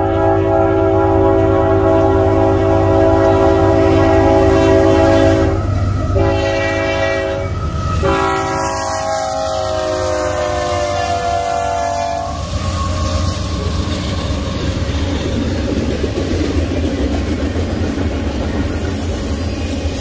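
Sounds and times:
locomotive air horn blasts: 0.0s - 13.5s
low rumble of moving train: 0.0s - 20.0s.

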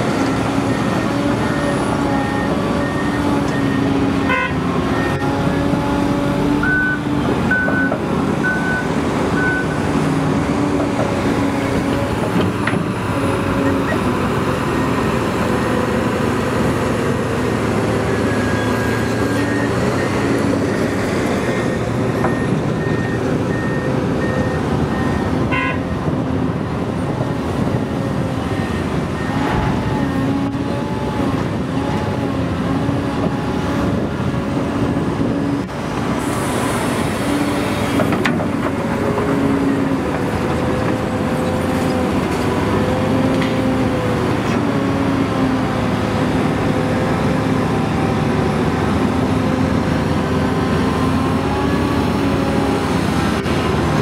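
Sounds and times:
excavator engine and hydraulics: 0.0s - 54.0s.

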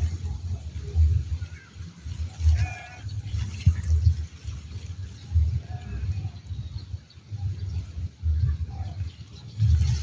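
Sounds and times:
bleating animal call: 2.5s - 3.1s.

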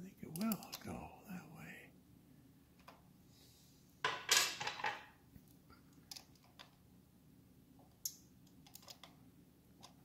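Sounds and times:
clattering and rustling: 4.0s - 5.1s.

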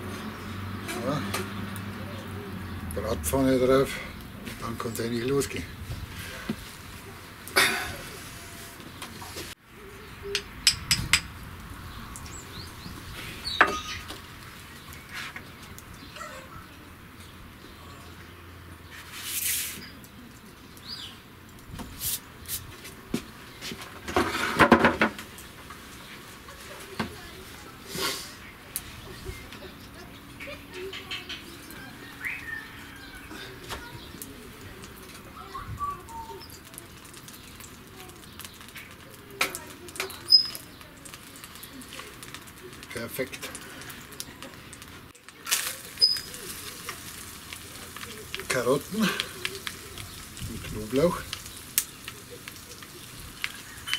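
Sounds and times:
wood fire crackling: 0.0s - 53.9s
birds chirping: 0.1s - 19.1s, 19.7s - 22.5s, 25.2s - 45.0s, 45.7s - 53.9s
bird chirps: 35.4s - 36.6s, 40.0s - 40.8s, 46.0s - 46.5s.

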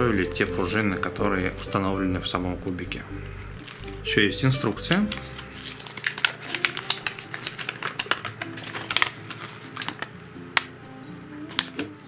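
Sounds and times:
paper crackling and rustling: 3.6s - 4.0s, 4.8s - 10.7s, 11.5s - 12.0s.

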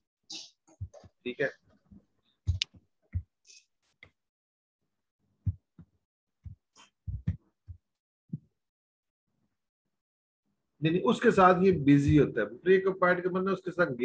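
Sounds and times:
soft low thumps: 2.5s - 3.3s, 5.4s - 8.5s, 11.4s - 12.4s.

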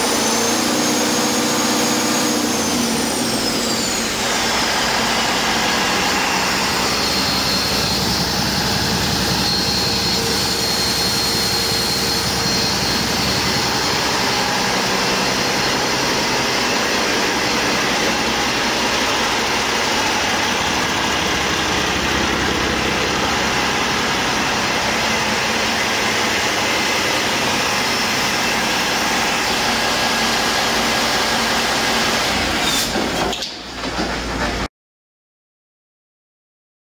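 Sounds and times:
diesel engine running: 0.0s - 32.7s
faint high whine: 3.4s - 29.5s.

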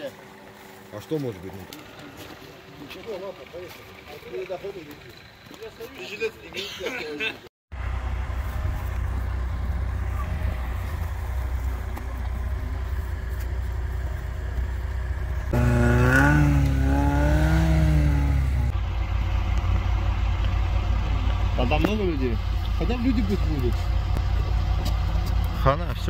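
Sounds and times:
car engine and road noise: 0.0s - 26.0s
pitched drone: 15.2s - 21.7s.

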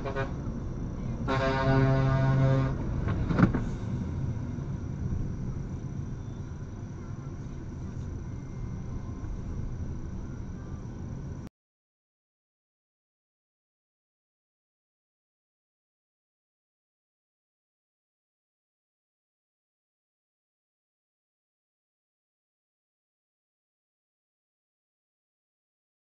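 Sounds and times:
car horn steady tone: 0.0s - 0.6s, 1.2s - 3.0s
car and tyres rumbling on road: 0.0s - 11.5s.

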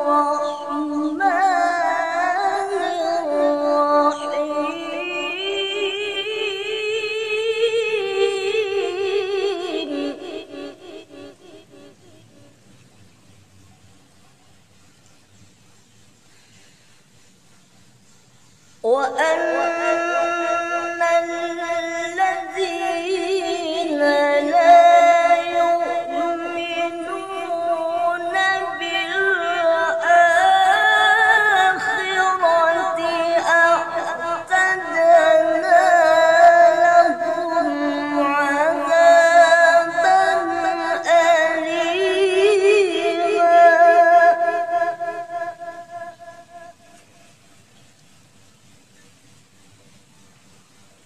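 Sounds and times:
man chanting melodically: 18.9s - 47.0s.

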